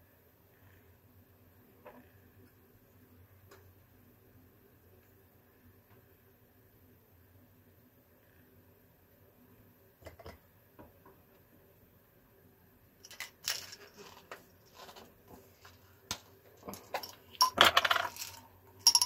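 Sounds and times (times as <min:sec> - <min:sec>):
plastic parts tapping and clattering: 0:13.0 - 0:19.0.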